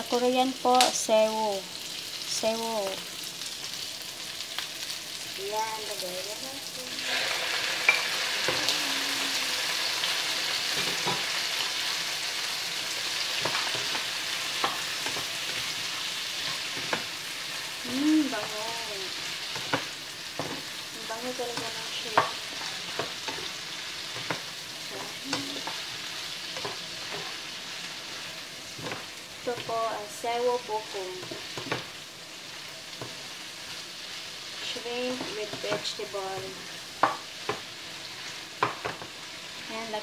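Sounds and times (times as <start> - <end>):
food sizzling in a pan: 0.0 - 40.0
spatula scraping a pan: 19.2 - 29.7.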